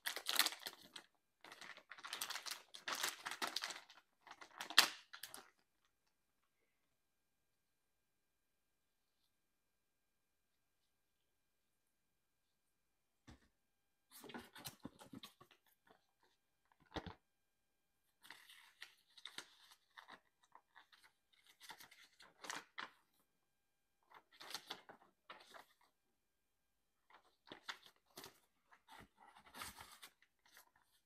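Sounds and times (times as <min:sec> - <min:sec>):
paper rustling and crinkling: 0:00.0 - 0:05.6, 0:18.2 - 0:23.1, 0:24.1 - 0:25.9, 0:27.1 - 0:31.0.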